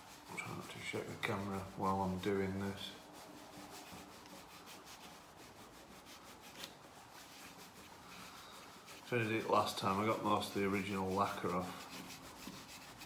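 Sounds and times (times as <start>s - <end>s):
cloth scrubbing metal: 0.0s - 13.0s.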